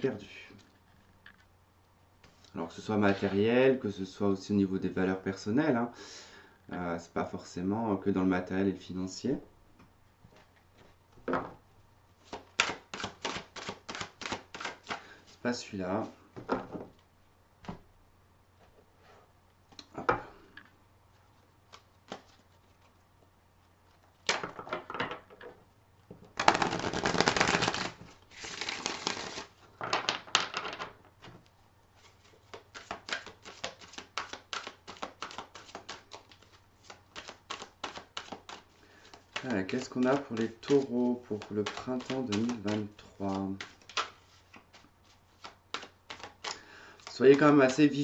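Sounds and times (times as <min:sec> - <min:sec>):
cards riffle shuffling: 0:12.2 - 0:15.4, 0:21.7 - 0:23.0, 0:26.4 - 0:29.6, 0:32.0 - 0:48.0.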